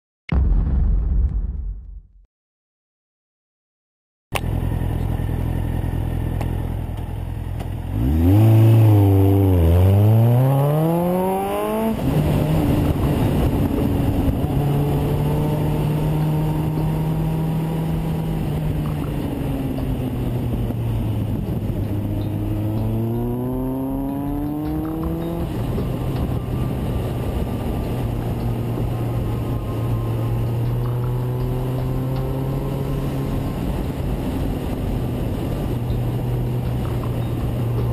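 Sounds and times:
motorcycle engine revving: 4.4 - 37.9
wind rushing over microphone: 7.9 - 37.9.

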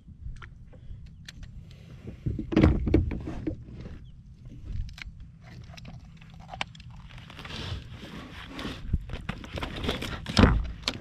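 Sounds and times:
fish handling clicks and rustling: 4.6 - 11.0.

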